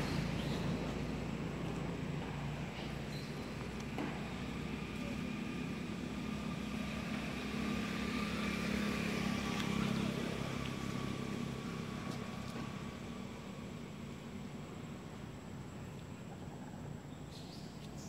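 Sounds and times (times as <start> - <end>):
motor engine running: 0.0 - 13.5.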